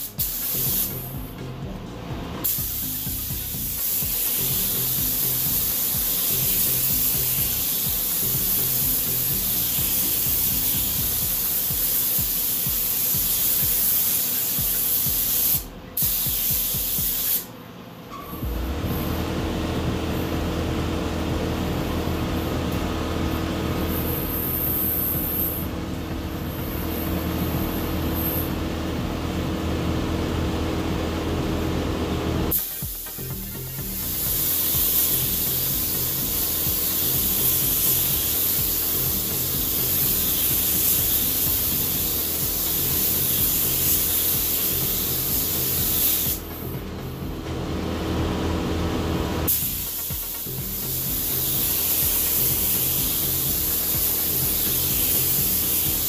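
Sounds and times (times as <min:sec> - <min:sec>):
paint spray gun hissing: 0:00.0 - 0:01.3, 0:02.4 - 0:17.5, 0:32.5 - 0:46.7, 0:49.5 - 0:56.0
low hum: 0:18.1 - 0:32.5.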